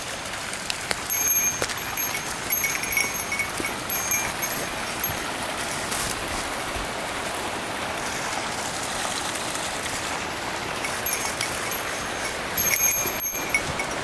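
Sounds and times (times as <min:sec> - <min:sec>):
stream rushing over rocks: 0:00.0 - 0:14.0
high metallic tinkling: 0:01.0 - 0:06.6, 0:10.5 - 0:14.0.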